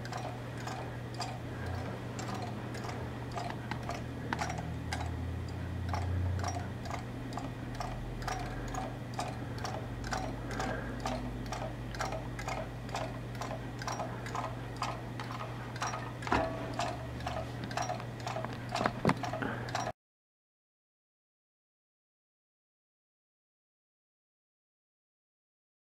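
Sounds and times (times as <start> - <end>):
steady low hum: 0.0 - 19.9
wheel ticking: 0.0 - 19.9.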